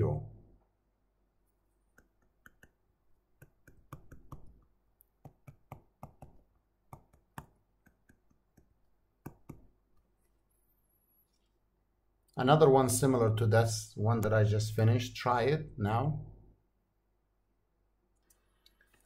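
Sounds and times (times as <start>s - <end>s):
stylus clicking on tablet screen: 1.7s - 10.4s.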